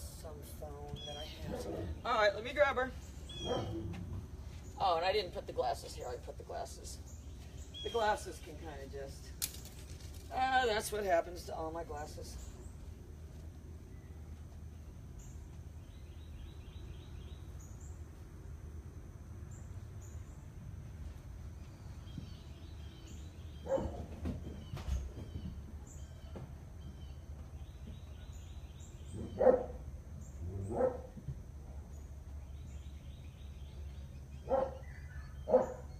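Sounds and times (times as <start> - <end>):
birds chirping: 0.0 - 13.2, 13.8 - 18.2, 21.4 - 35.9
dog barking: 3.4 - 3.8, 23.6 - 24.0, 29.2 - 29.8, 30.7 - 31.1, 34.4 - 34.9, 35.5 - 35.9.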